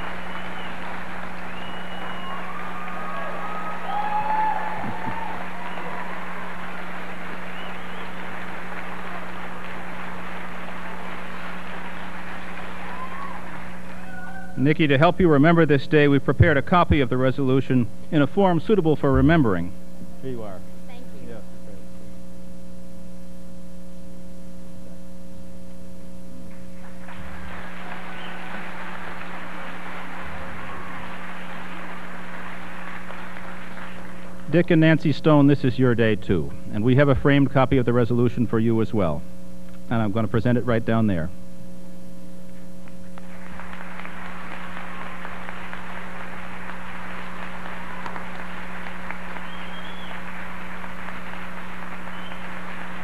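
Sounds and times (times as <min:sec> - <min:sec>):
audience applause: 0:00.0 - 0:15.6, 0:26.8 - 0:35.5, 0:43.0 - 0:53.0
electrical mains hum: 0:00.0 - 0:53.0.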